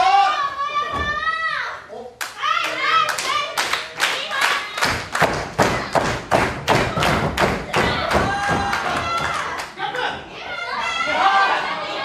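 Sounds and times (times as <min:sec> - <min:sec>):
rhythmic thuds in wrestling ring: 0:04.8 - 0:09.6
high-pitched shout: 0:07.8 - 0:12.0.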